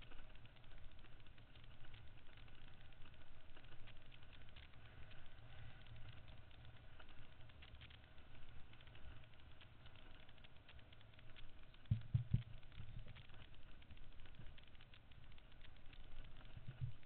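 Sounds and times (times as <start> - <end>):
stones clicking and rattling: 3.0 - 17.0.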